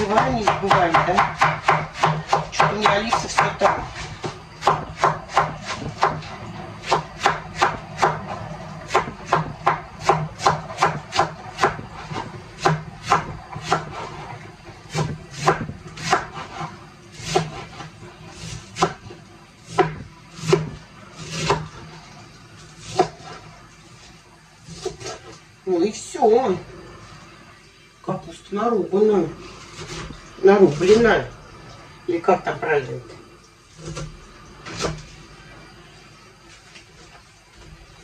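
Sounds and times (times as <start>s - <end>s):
knife cutting cabbage: 0.0s - 22.0s, 22.6s - 23.5s, 24.6s - 25.4s, 29.5s - 31.3s.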